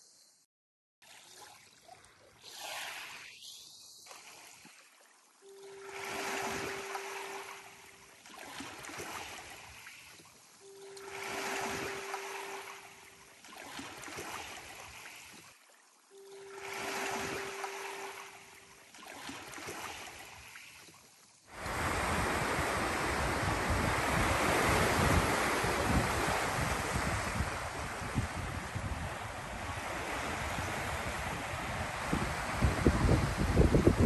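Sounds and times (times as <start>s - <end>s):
small waves lapping on rocks: 3.9s - 27.4s
surf breaking on cobble beach: 5.8s - 7.8s, 21.6s - 34.0s
wind on microphone: 21.6s - 34.0s.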